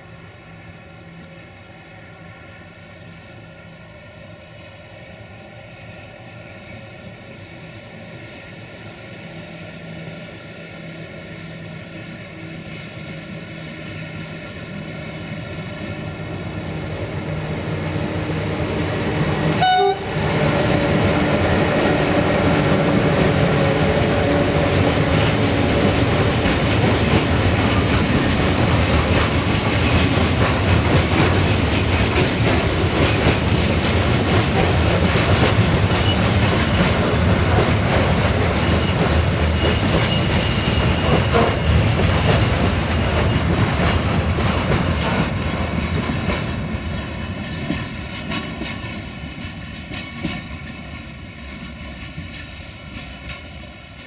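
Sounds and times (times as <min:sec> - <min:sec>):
high wheel squeal: 0:30.2 - 0:52.6.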